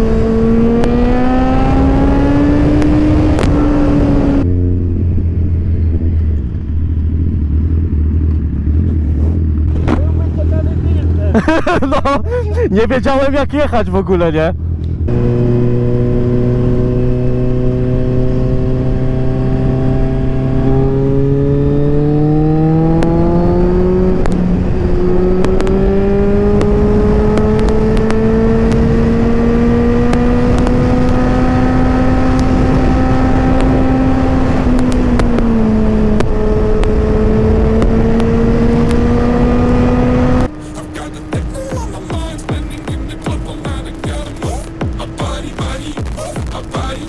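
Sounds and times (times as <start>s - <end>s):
wind noise: 0.0s - 8.0s, 14.9s - 40.6s
motorcycle engine running: 0.0s - 11.8s, 14.5s - 47.0s.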